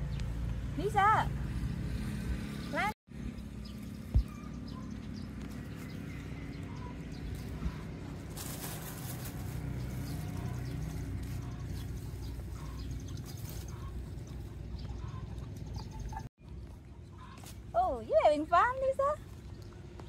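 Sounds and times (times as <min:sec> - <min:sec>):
rustling: 0:08.1 - 0:14.0.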